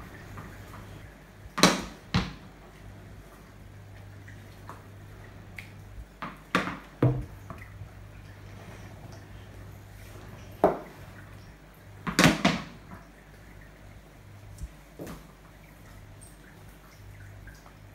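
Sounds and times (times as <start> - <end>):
cricket bat and ball knocking on tiles: 6.2 - 7.3.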